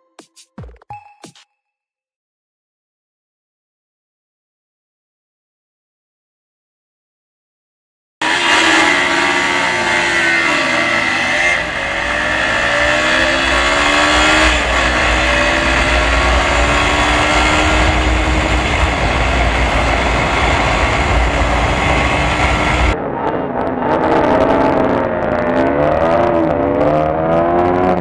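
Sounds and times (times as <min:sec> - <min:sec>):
motorcycle engine accelerating: 0:08.2 - 0:28.0
wind rumble on microphone: 0:12.4 - 0:25.6.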